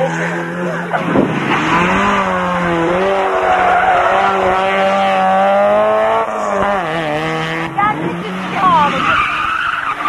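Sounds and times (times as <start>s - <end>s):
rally car engine at high revs: 0.0s - 10.0s.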